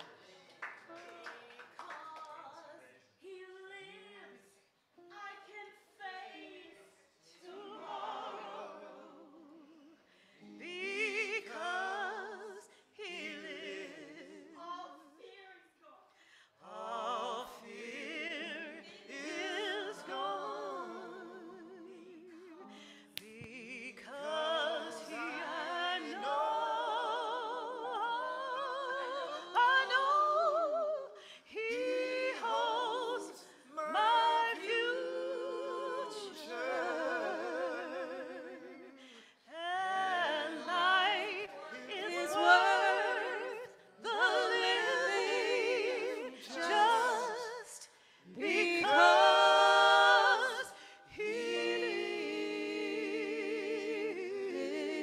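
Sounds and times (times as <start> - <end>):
church vocal group singing: 5.4 - 15.2, 16.2 - 55.0.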